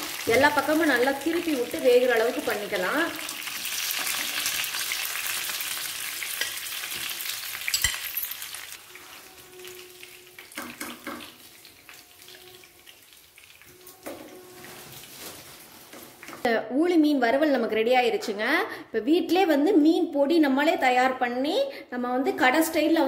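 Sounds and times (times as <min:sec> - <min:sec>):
fish sizzling in oil: 0:00.0 - 0:13.8.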